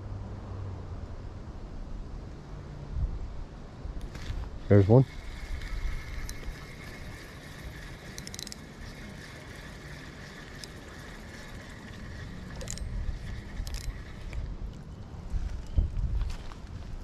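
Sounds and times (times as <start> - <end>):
fishing reel whirring: 4.0 - 14.8.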